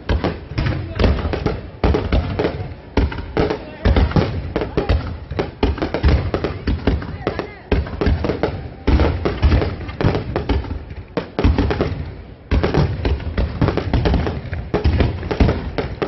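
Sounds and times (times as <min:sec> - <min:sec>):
fireworks bangs and crackles: 0:00.0 - 0:16.0.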